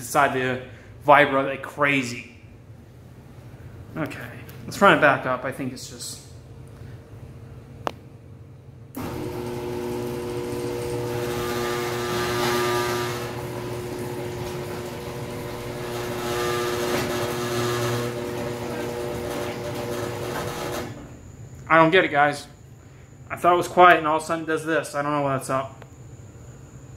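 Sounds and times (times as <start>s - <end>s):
garage door opener rattling hum: 9.0s - 21.4s.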